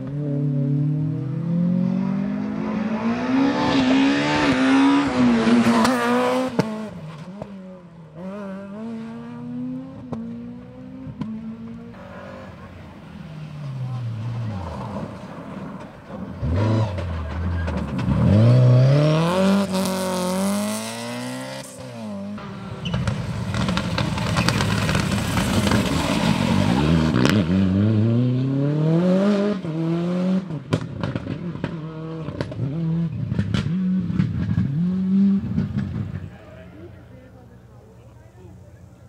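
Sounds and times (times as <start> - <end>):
rally car engine revving: 0.0 - 37.0
exhaust pops: 15.6 - 18.9, 22.8 - 27.5, 30.6 - 36.4.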